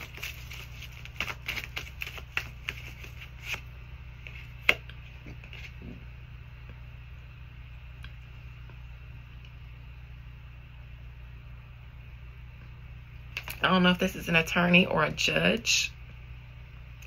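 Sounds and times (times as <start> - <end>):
cards flicking and snapping: 0.0 - 3.6
steady low hum: 0.0 - 17.0.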